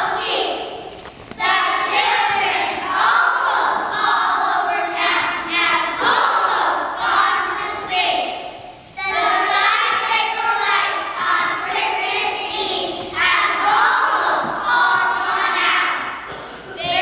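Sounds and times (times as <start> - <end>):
children's choir singing: 0.0 - 17.0.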